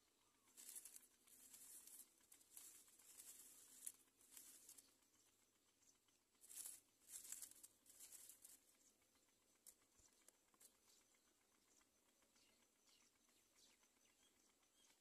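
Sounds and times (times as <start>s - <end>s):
rustling of dry grass nest: 0.0s - 10.8s.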